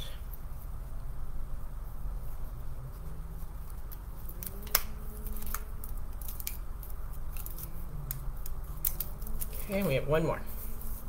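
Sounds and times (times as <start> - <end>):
plastic mesh ribbon crinkling: 3.0 - 11.0.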